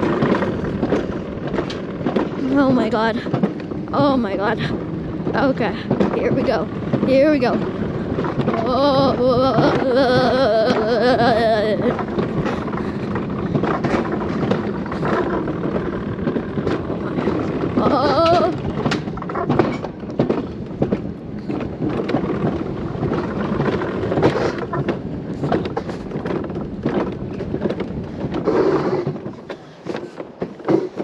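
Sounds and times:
wheels rumbling on rails: 0.0 - 31.0
wind noise: 0.0 - 31.0.

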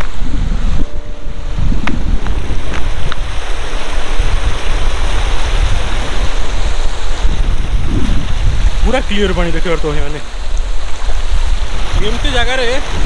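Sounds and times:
low rumble: 0.0 - 8.7
river water flowing: 0.0 - 13.0
wind buffeting microphone: 0.0 - 13.0.

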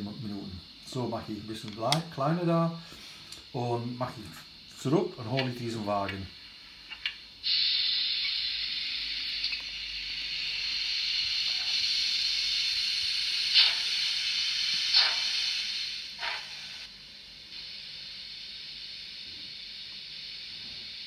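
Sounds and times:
model locomotive steam hiss: 0.0 - 21.0
steam puffs: 7.4 - 16.9.

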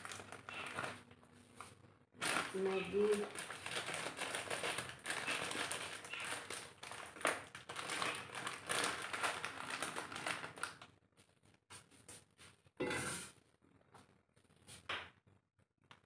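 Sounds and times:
plastic wrapper crinkling: 0.0 - 1.0, 1.6 - 11.0.

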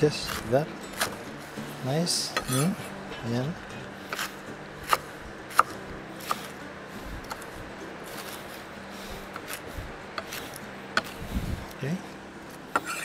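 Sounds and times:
knife chopping on cutting board: 0.2 - 1.2, 4.1 - 6.6, 7.2 - 7.5, 10.2 - 11.2.

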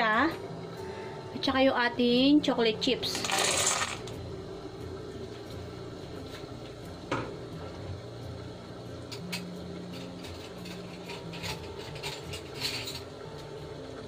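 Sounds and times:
water boiling: 0.0 - 14.0.

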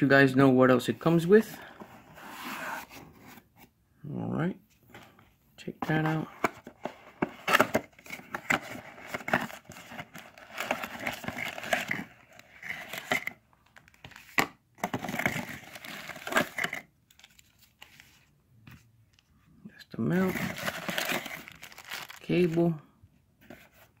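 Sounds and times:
plastic bag crinkling: 20.4 - 22.7.

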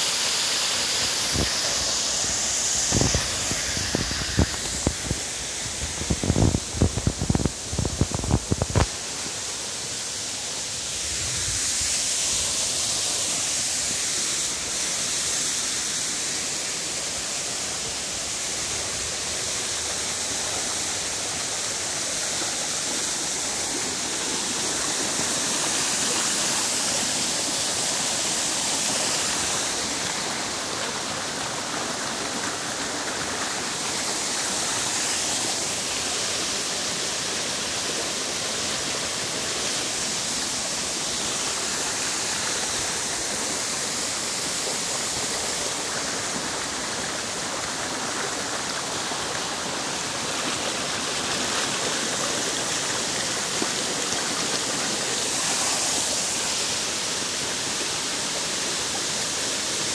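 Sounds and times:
water rushing over rocks: 0.0 - 59.9.

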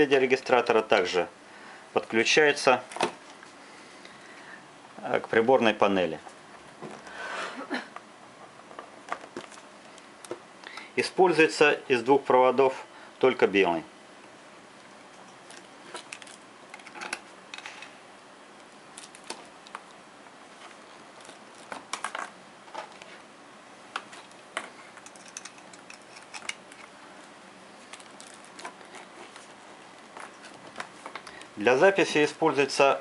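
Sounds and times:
cables rustling: 14.8 - 18.0, 18.6 - 23.3, 23.9 - 31.9.

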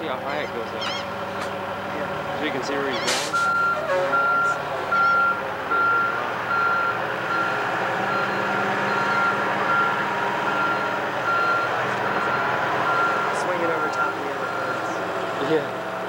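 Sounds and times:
forklift engine running: 0.0 - 16.0
forklift back-up alarm beeping: 3.3 - 15.0.

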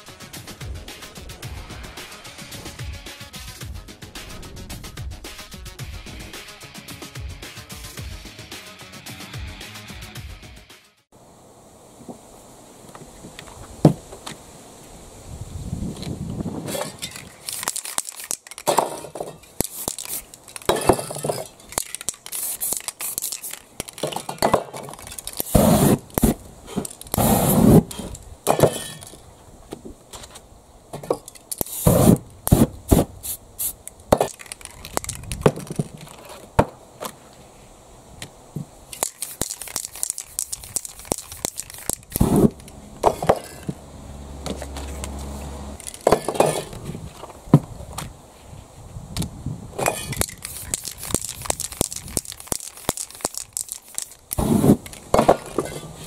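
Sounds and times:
spray cans clinking: 16.7 - 29.2, 31.0 - 36.4, 38.9 - 43.8, 45.8 - 46.8, 49.8 - 56.0
spray paint can hissing: 17.1 - 18.8, 19.5 - 24.2, 24.8 - 28.2, 31.5 - 36.1, 38.9 - 42.7, 50.0 - 55.0.

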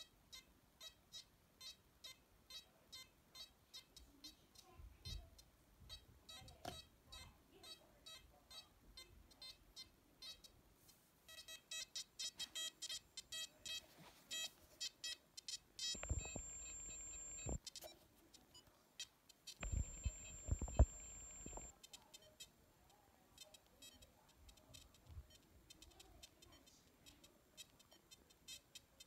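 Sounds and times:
metal detector short beeps: 16.0 - 17.6, 19.6 - 21.7.

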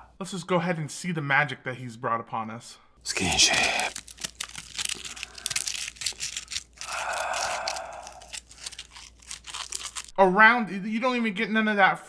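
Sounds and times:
crunchy bites: 3.1 - 10.1
fried chicken skin crackling: 3.2 - 10.1.

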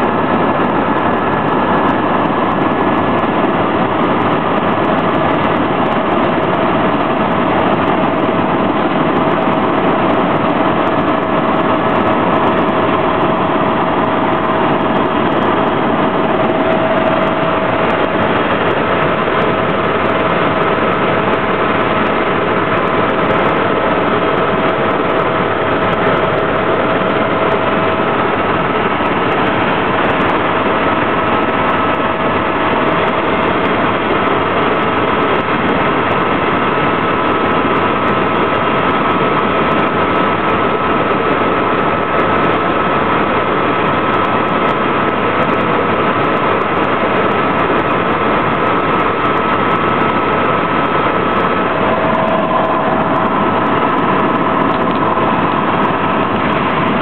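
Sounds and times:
helicopter engine and rotor drone: 0.0 - 57.0
steady whine: 0.0 - 57.0.

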